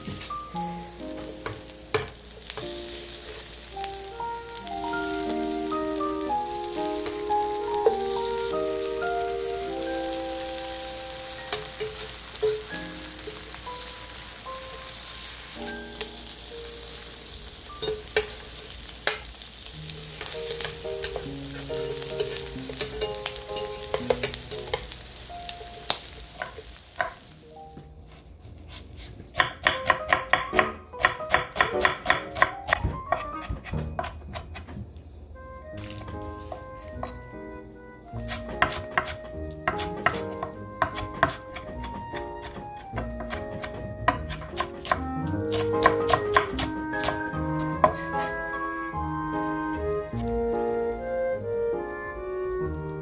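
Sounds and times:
pancakes sizzling in oil: 0.0s - 27.5s
knife chopping on wooden board: 28.6s - 34.8s, 38.2s - 48.4s.

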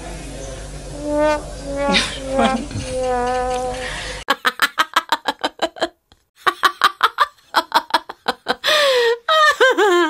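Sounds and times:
held tone: 1.0s - 4.0s
woman laughing hard: 1.9s - 10.0s.

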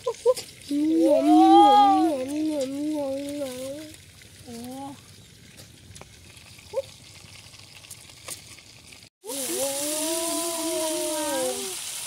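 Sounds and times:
fish frying in hot oil: 0.0s - 12.0s
drawn-out voice-like tone: 9.3s - 11.8s.

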